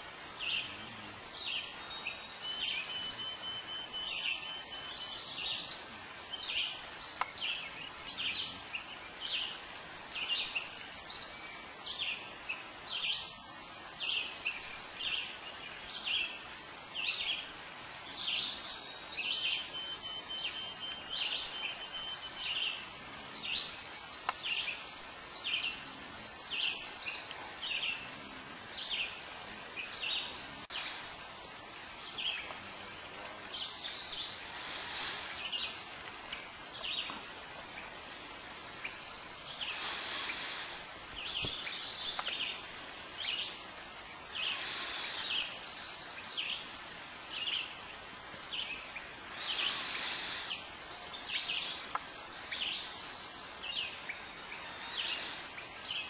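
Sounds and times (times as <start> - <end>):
birds chirping: 0.0 - 56.0.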